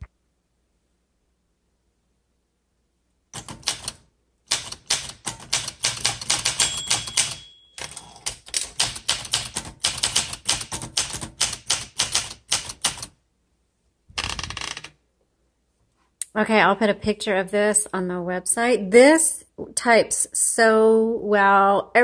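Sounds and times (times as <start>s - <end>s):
manual typewriter key strikes: 3.4s - 13.1s
typewriter carriage return rattle: 3.4s - 13.1s
thin ringing tone: 6.6s - 8.2s.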